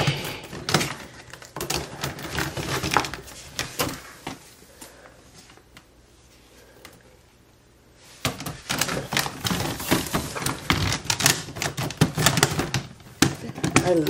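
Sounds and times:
plastic shoe boxes clicking: 0:08.2 - 0:14.0.

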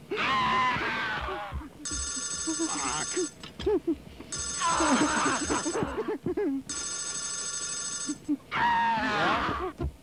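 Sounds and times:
telephone ringing: 0:01.8 - 0:03.4, 0:04.3 - 0:05.9, 0:06.7 - 0:08.3.

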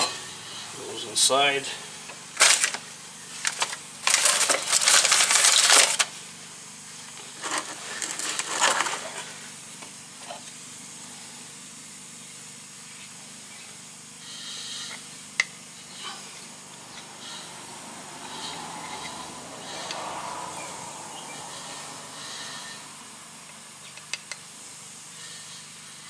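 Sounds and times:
tools clattering and scraping: 0:03.4 - 0:06.1, 0:07.4 - 0:09.3.

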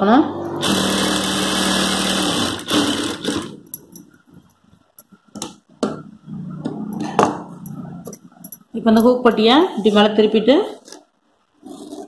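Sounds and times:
sewing machine stitching: 0:00.6 - 0:03.6.

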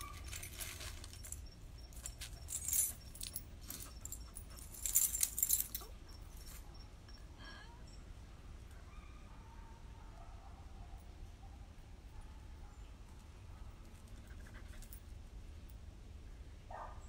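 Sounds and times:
light metallic jingling: 0:00.0 - 0:08.1.

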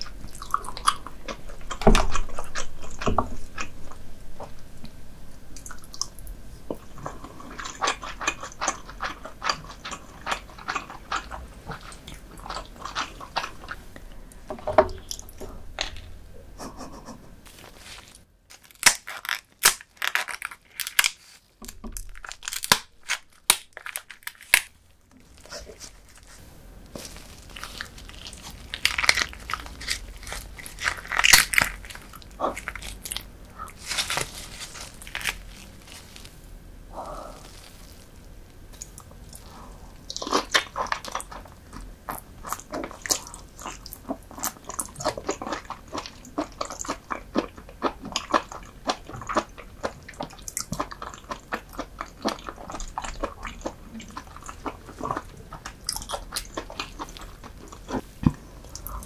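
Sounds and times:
wet biting and chewing: 0:00.0 - 0:05.0, 0:05.6 - 0:13.9, 0:27.0 - 0:36.2, 0:37.0 - 0:59.0.

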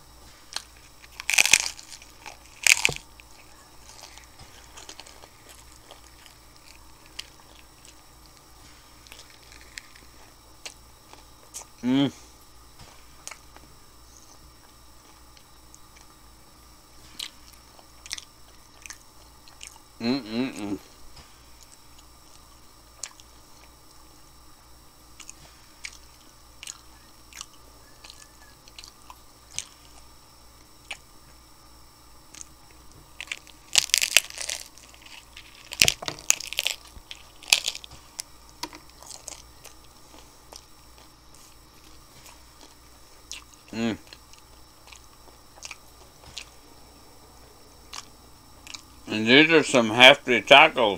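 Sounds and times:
person chewing taco: 0:00.0 - 0:49.1
sharp crackles: 0:00.4 - 0:10.8, 0:33.2 - 0:41.1.

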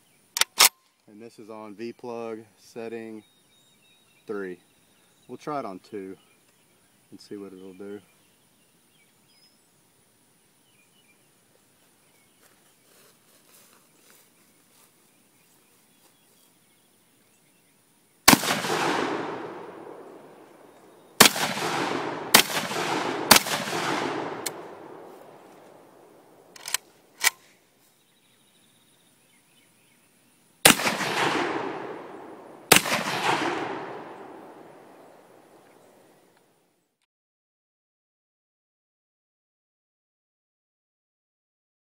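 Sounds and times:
loud shotgun shots with echo: 0:18.3 - 0:26.5, 0:30.6 - 0:35.6.

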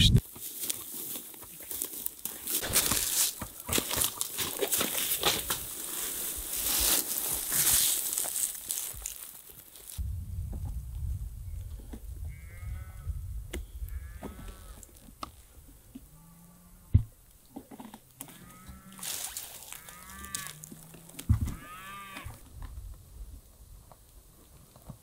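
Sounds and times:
low wind rumble: 0:10.0 - 0:14.7.

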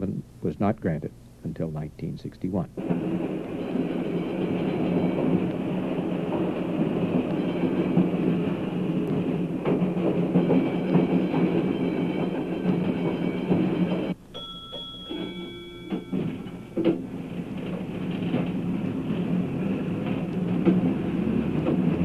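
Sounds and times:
electric train running on rails: 0:02.8 - 0:22.0
grade-crossing bell ringing: 0:03.0 - 0:09.4, 0:10.0 - 0:17.9.

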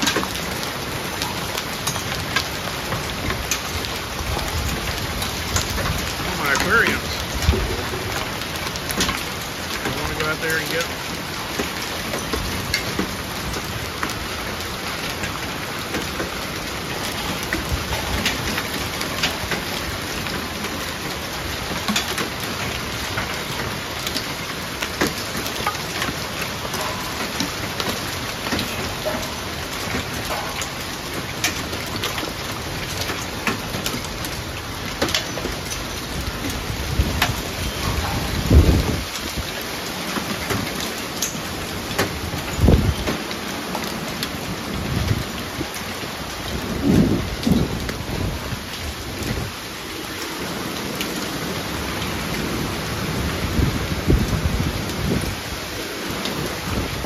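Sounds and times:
hailstones clicking: 0:00.0 - 0:53.2
heavy rain hissing: 0:00.0 - 0:57.0
low thunder rumble: 0:07.0 - 0:08.6, 0:36.1 - 0:39.5, 0:46.5 - 0:49.6.

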